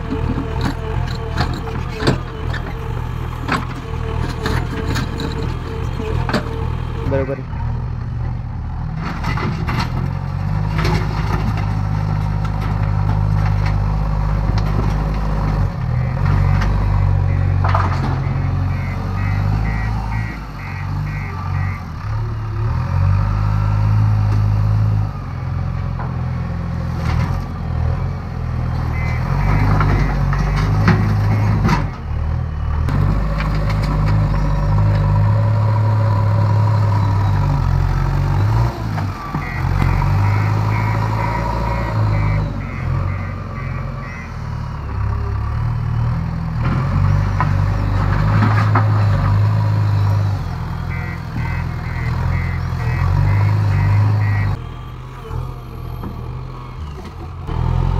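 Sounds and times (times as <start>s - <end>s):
clanks and knocks: 0.0s - 6.7s, 17.6s - 18.3s
diesel engine running: 0.0s - 57.9s
reversing alarm beeping: 0.1s - 7.2s, 16.0s - 22.0s, 28.9s - 32.0s, 38.4s - 44.4s, 50.2s - 54.6s.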